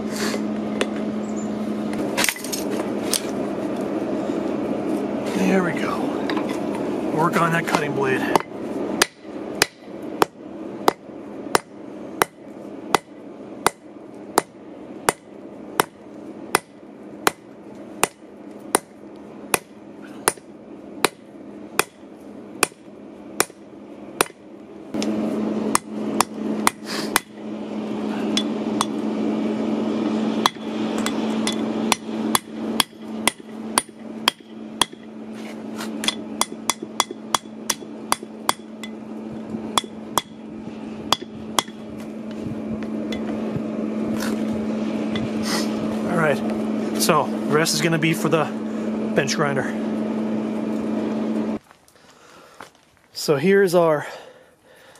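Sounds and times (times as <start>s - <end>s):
steady low hum: 0.0s - 54.9s
hammer blows on anvil: 36.0s - 39.0s.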